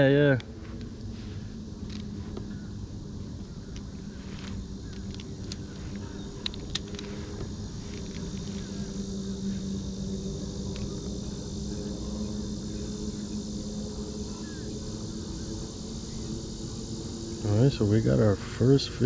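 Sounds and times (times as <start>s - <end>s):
insects buzzing: 0.0s - 19.0s
sharp clicks: 3.7s - 8.7s.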